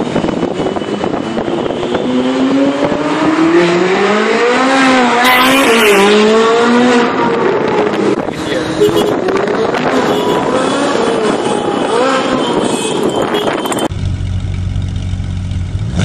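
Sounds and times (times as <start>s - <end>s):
sports car engine accelerating: 0.2s - 12.3s.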